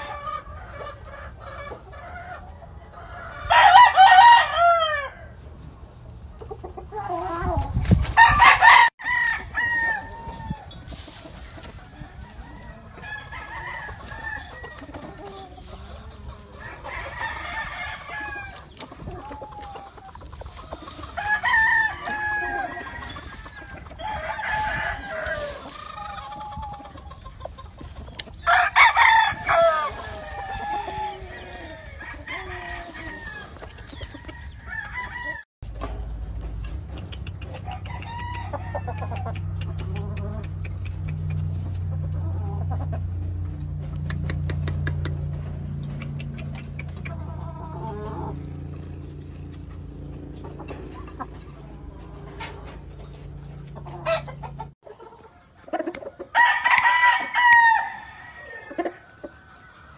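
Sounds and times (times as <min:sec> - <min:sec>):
hens clucking: 0:00.0 - 0:04.1, 0:04.9 - 0:59.9
rooster crowing: 0:02.9 - 0:05.4, 0:08.2 - 0:10.8, 0:11.9 - 0:15.4, 0:16.5 - 0:18.7, 0:21.2 - 0:26.4, 0:28.4 - 0:35.4, 0:37.6 - 0:39.2, 0:56.2 - 0:59.9.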